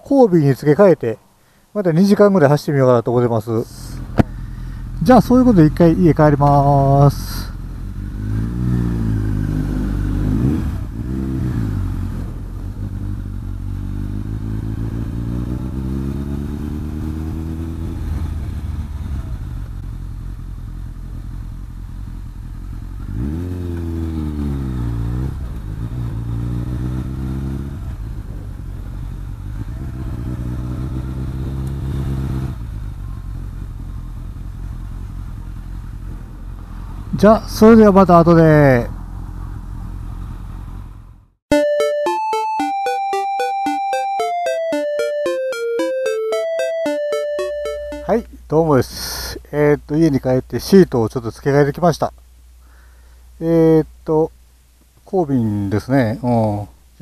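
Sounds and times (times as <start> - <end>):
motorcycle engine accelerating: 4.0 - 36.6.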